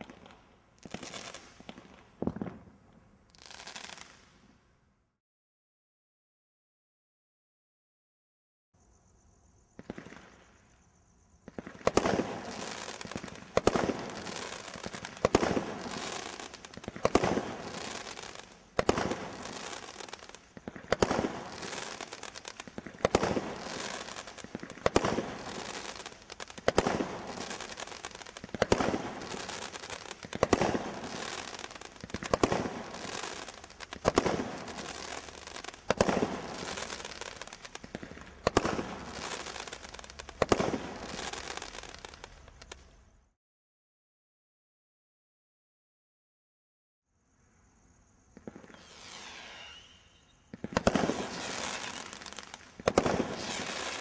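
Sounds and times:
firework stars hissing: 0.0s - 2.0s, 3.3s - 4.6s, 9.8s - 43.1s, 48.2s - 54.0s
firework shots sharp reports: 11.4s - 42.8s, 48.4s - 54.0s.

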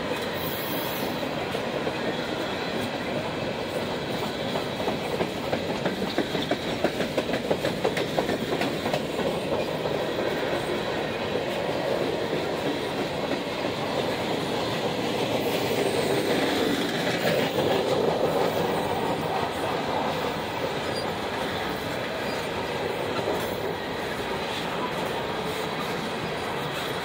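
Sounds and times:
train wheels rumbling on rails: 0.0s - 27.0s
faint high wheel squeal: 0.1s - 3.0s, 20.6s - 22.8s.

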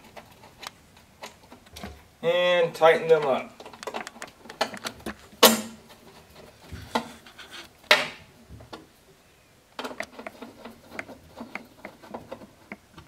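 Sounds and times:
screwdriver clicking and scraping: 9.8s - 13.0s.

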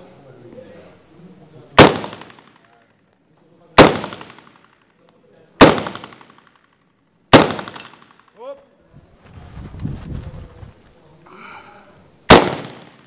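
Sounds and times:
rifle shots with echo: 1.7s - 2.9s, 3.7s - 5.0s, 5.6s - 8.4s, 12.3s - 13.0s.

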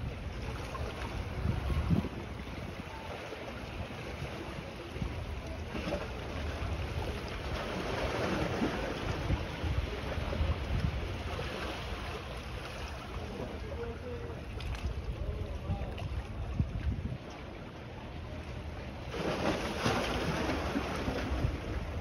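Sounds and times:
wind buffeting microphone: 0.0s - 2.8s, 8.7s - 11.5s, 14.6s - 17.4s, 21.1s - 22.0s
small waves on shore: 0.0s - 22.0s.

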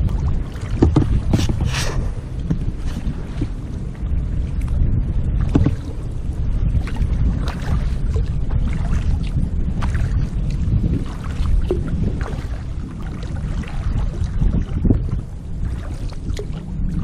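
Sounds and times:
paddle splashing in water: 0.0s - 4.8s, 5.4s - 6.0s, 6.7s - 17.0s
low rumble: 0.0s - 17.0s.

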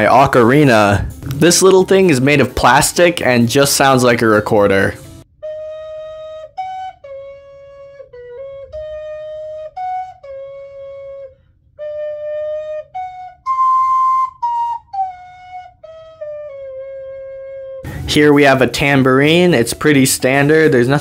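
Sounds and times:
ocarina playing tune: 5.0s - 18.0s.

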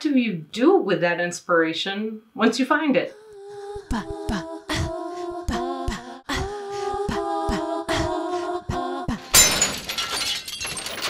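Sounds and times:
layered voices singing chords: 3.0s - 9.5s.

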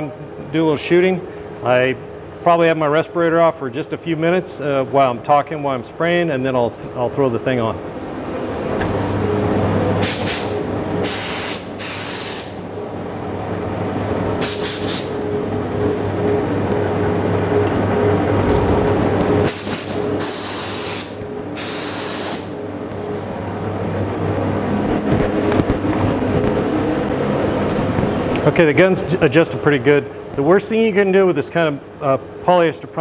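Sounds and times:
steady low hum: 0.0s - 33.0s
spray gun hissing: 10.0s - 12.6s, 14.4s - 15.2s, 19.5s - 22.6s.

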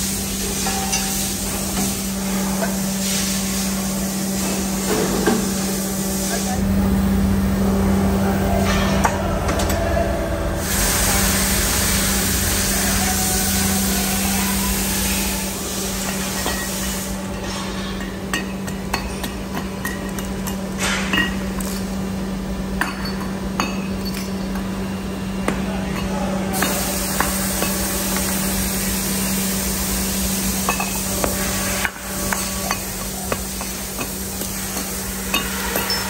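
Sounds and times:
loud hiss: 0.0s - 6.6s, 10.5s - 17.4s, 26.6s - 36.0s
machine hum: 0.0s - 17.6s.

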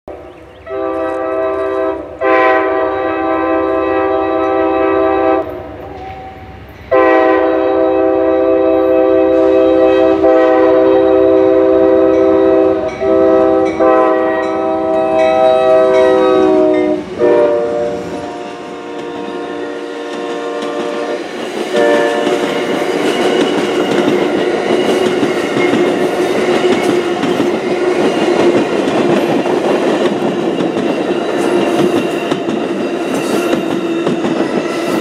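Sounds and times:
low rumble of train: 0.1s - 35.0s
locomotive air horn blasts: 0.7s - 5.7s, 6.9s - 23.4s.

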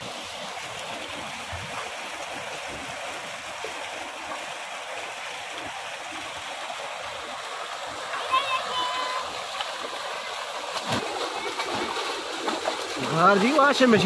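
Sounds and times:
water pouring out: 0.0s - 14.0s.

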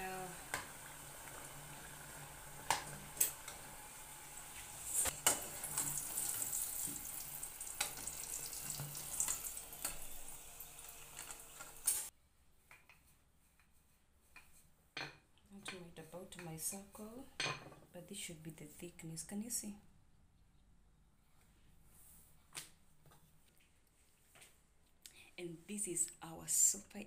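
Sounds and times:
dough sizzling in hot oil: 0.0s - 12.1s.

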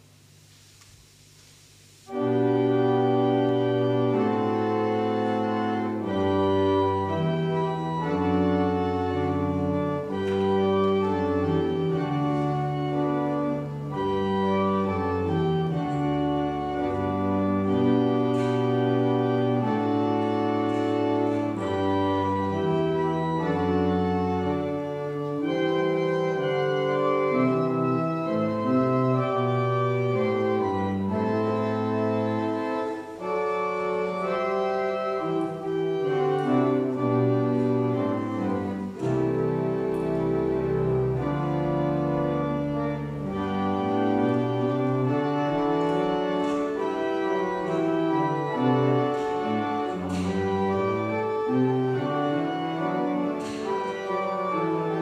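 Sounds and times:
church organ chords: 1.2s - 55.0s.

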